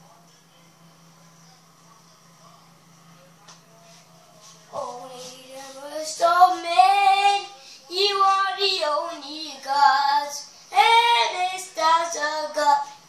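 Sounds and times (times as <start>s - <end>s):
child singing: 4.8s - 12.9s.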